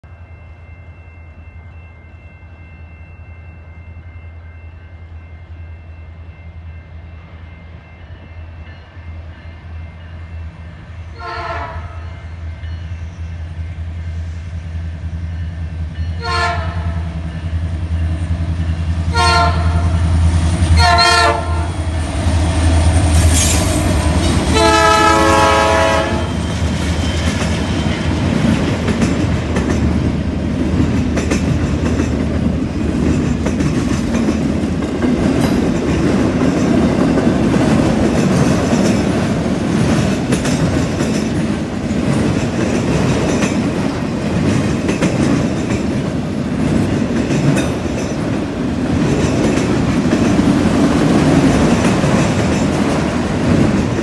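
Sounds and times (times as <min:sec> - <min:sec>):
diesel locomotive engines rumbling: 0:00.0 - 0:54.0
locomotive horn: 0:11.1 - 0:12.2, 0:16.2 - 0:17.0, 0:19.1 - 0:20.1, 0:20.8 - 0:21.9, 0:24.4 - 0:26.4
train wheels clattering on rails: 0:15.3 - 0:54.0.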